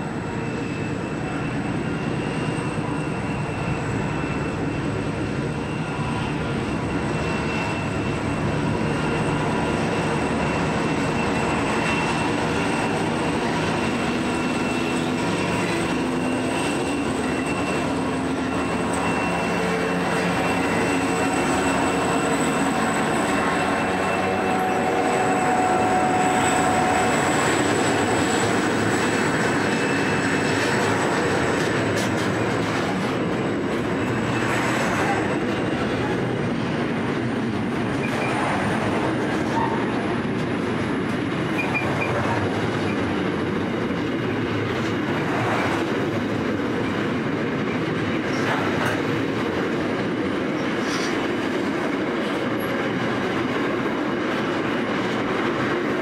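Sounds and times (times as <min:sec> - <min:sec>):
freight train wheels rumbling: 0:00.0 - 0:56.0
faint wheel squeal: 0:41.5 - 0:42.3.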